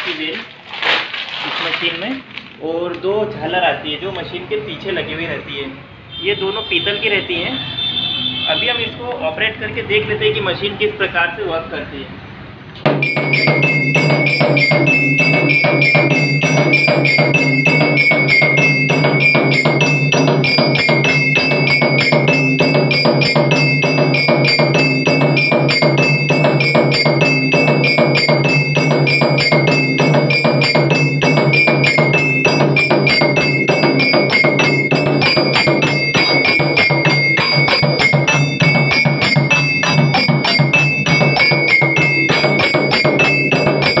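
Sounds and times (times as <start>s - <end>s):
sticks beating a drum: 12.8s - 44.0s
brass bells ringing: 12.9s - 44.0s.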